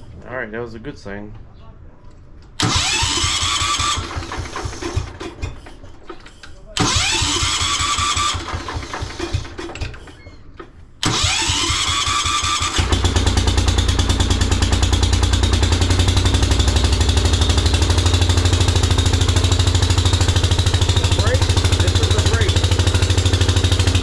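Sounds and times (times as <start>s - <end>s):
starter cranking engine: 2.6s - 10.2s, 11.0s - 24.0s
engine running: 6.8s - 9.7s, 11.0s - 24.0s.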